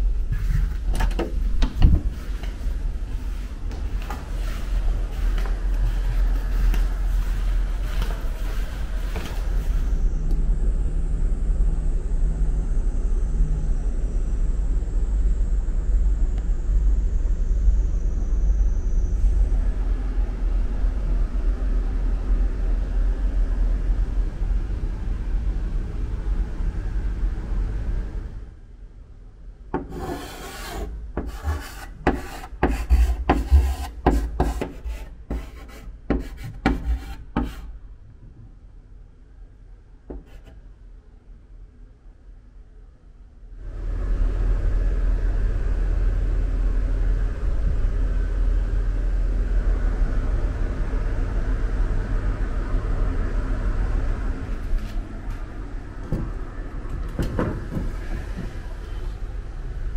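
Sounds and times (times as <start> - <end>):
steady low rumble: 0.0 - 39.9, 43.5 - 59.9
chalk writing on blackboard: 29.8 - 37.7, 40.1 - 40.6.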